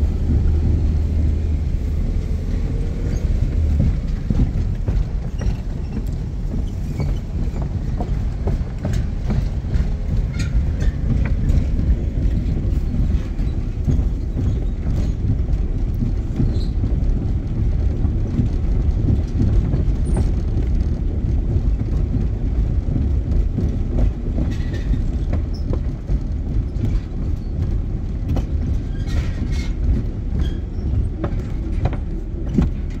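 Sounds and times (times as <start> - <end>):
tyres rumbling over bridge deck: 0.0 - 33.0
knocks and clicks: 2.2 - 33.0.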